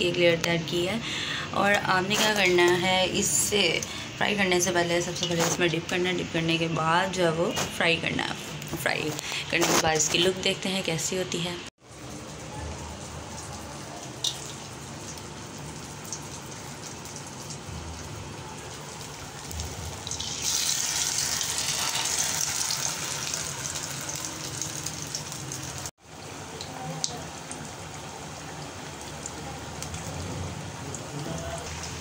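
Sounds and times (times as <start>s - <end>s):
food sizzling in hot oil: 18.7s - 26.2s.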